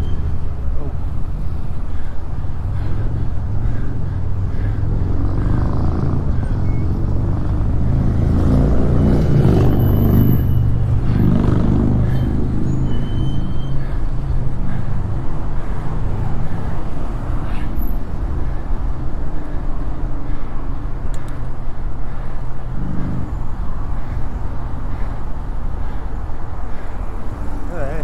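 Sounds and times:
road traffic rumble: 0:00.0 - 0:28.0
vehicle engine passing close: 0:02.9 - 0:18.2.

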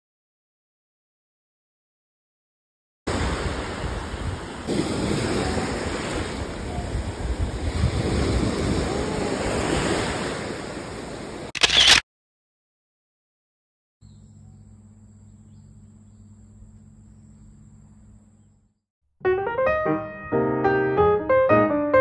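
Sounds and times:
wind buffeting microphone: 0:03.1 - 0:11.4
small waves washing onto shore: 0:03.1 - 0:11.5.

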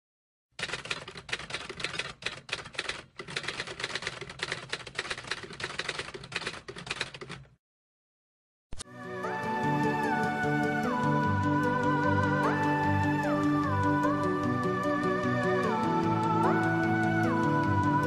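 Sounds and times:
typewriter key clacks: 0:00.6 - 0:07.5
music: 0:08.8 - 0:18.0.

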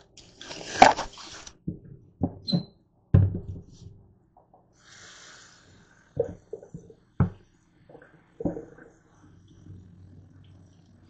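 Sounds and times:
knocks and clatters at sink: 0:06.2 - 0:08.9.

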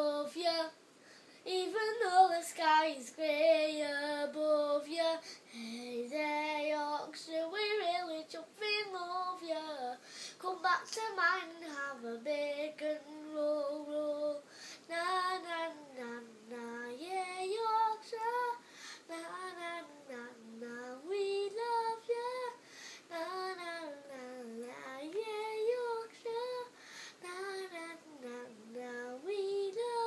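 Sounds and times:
boy singing unaccompanied: 0:00.0 - 0:00.8, 0:01.4 - 0:30.0.

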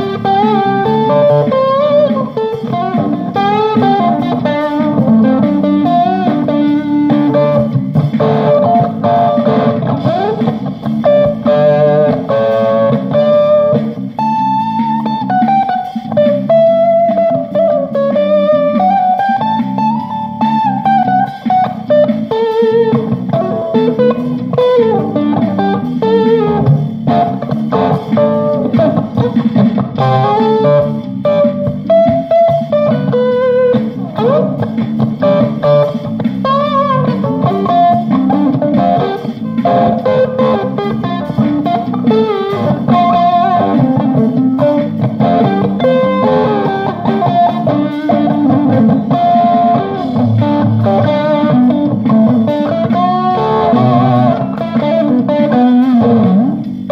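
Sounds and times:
electric guitar lead line: 0:00.0 - 0:56.9
low backing part: 0:00.0 - 0:56.9.

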